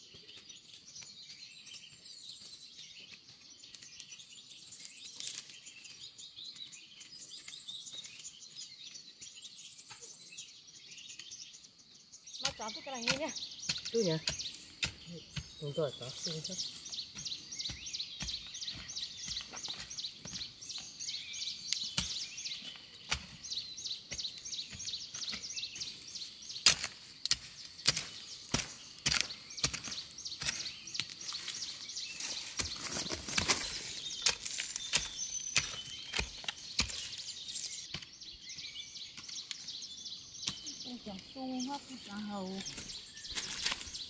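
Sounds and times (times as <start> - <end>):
high chirping calls: 0.0 - 44.0
hoe chopping into soil: 21.7 - 25.9, 26.6 - 31.6, 32.2 - 38.2, 42.6 - 44.0.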